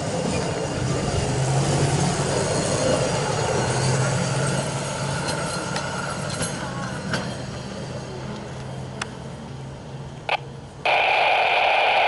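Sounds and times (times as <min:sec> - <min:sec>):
wheels rumbling on track: 0:00.0 - 0:10.8.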